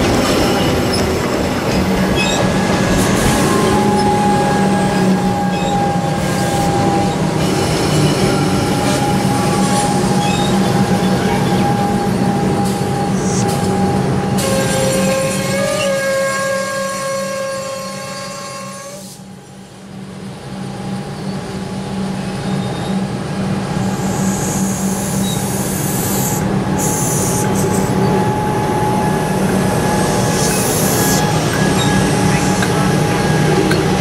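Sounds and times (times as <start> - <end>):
train motor whine: 0.0 - 19.3, 23.9 - 34.0
electric train rumble: 0.0 - 34.0
high wheel squeal: 2.2 - 16.0, 24.0 - 33.9.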